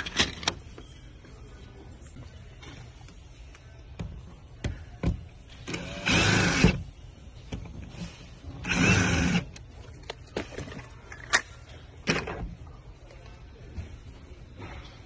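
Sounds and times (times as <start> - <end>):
cordless drill driving screws: 5.7 - 6.8, 8.6 - 9.6.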